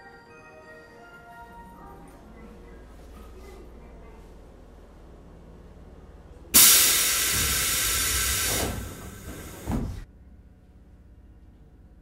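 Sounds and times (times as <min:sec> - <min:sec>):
compressed air venting hiss: 0:06.6 - 0:09.7.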